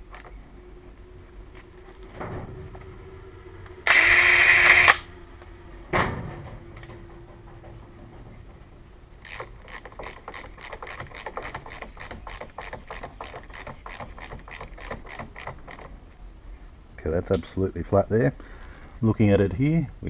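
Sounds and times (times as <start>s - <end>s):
ratcheting screwdriver clicking: 9.2s - 15.9s.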